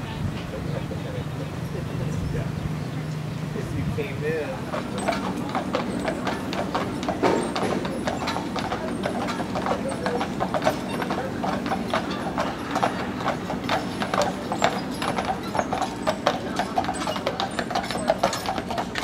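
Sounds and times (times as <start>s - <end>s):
horse hooves clip-clopping on pavement: 3.9s - 19.0s.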